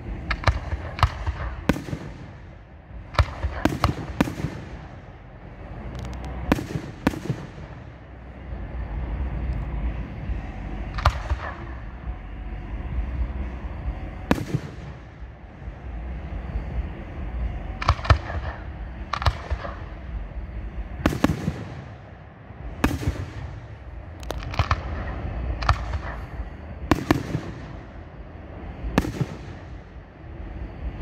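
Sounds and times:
rolling echo: 0.0 - 31.0
firework shells bursting: 22.8 - 28.0.

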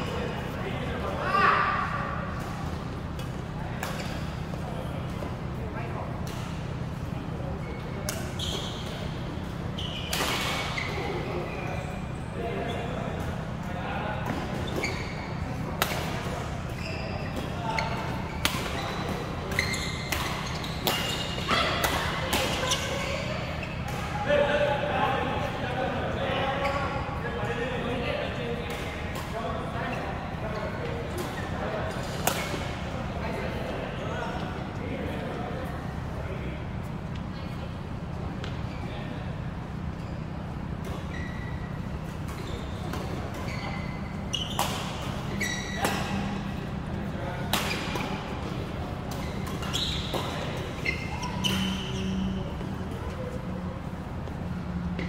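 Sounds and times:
low hall hum: 0.0 - 55.0
shoes squeaking on floor: 7.6 - 13.0, 14.4 - 24.2, 40.0 - 46.6, 47.3 - 53.6
racket hitting shuttlecock: 47.4 - 50.4.

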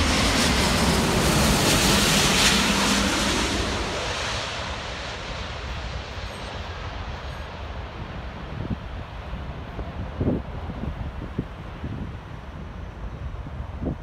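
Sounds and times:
jet engine roar: 0.0 - 10.7
wind noise on microphone: 5.6 - 14.0.

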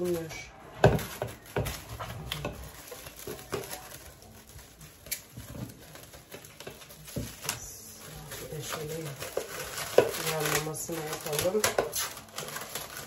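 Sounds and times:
cling film crinkling: 0.0 - 13.0
sharp crackles: 1.0 - 13.0.

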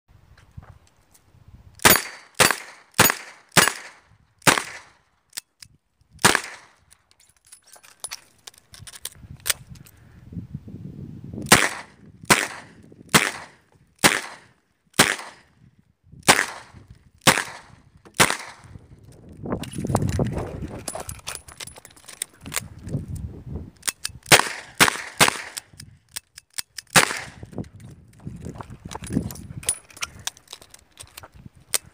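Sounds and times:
revolver gunshots: 1.8 - 4.9, 6.2 - 6.7, 11.5 - 15.5, 16.3 - 18.7, 24.3 - 25.6, 26.9 - 27.4.

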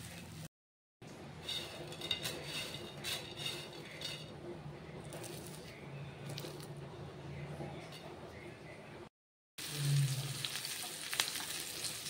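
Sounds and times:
prawns scraping against a pan: 1.4 - 4.3.

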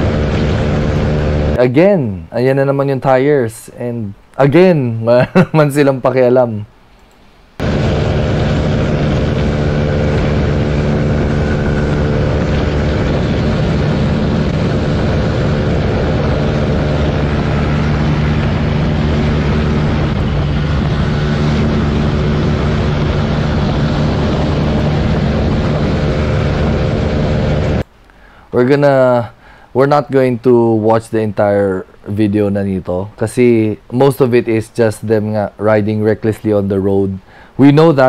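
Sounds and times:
motorcycle engine running: 0.0 - 1.6, 7.6 - 27.8
wind noise: 0.0 - 1.6, 7.6 - 27.8.

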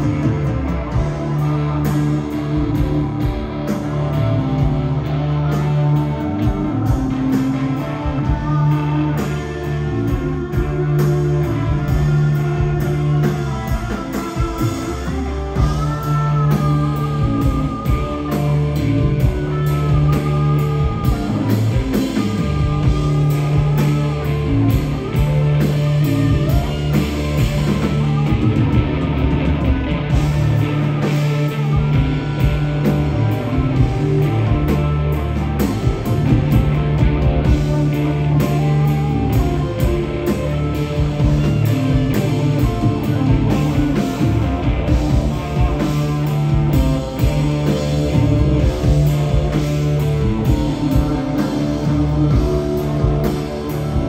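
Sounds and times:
bass guitar: 0.0 - 54.0
drum kit beat: 0.0 - 54.0
electric guitars: 0.0 - 54.0.

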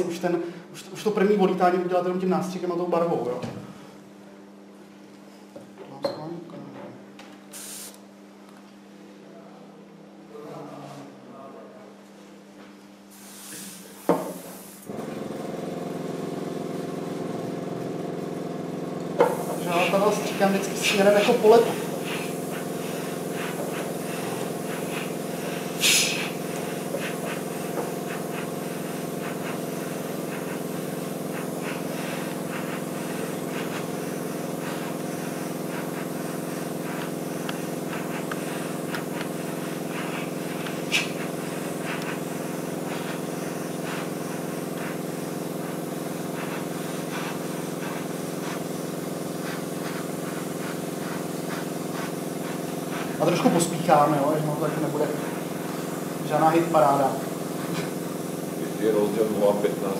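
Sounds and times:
airbrush spraying hiss: 7.5 - 8.0, 13.1 - 14.9, 19.2 - 59.9
bursts of air: 7.5 - 8.0, 19.2 - 58.9
airbrush compressor humming: 13.2 - 59.9.

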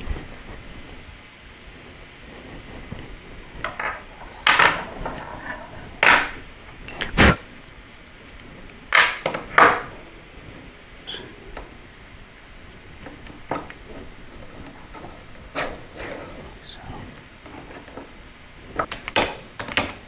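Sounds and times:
metal parts clinking on workbench: 3.6 - 6.4.

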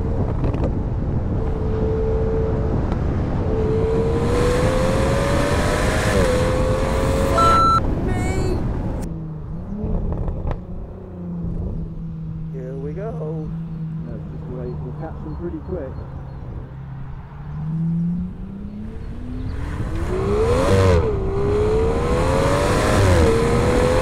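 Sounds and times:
wind rush: 0.0 - 9.1.

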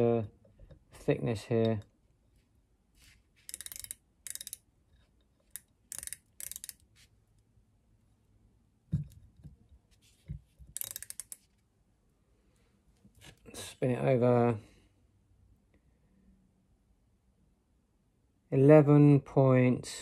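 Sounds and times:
micrometer ratchet clicking: 3.4 - 4.7, 5.5 - 6.9, 10.7 - 11.4.

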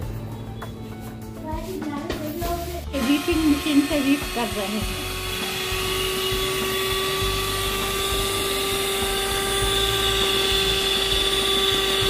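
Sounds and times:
electric hand mixer whirring: 2.9 - 12.0.

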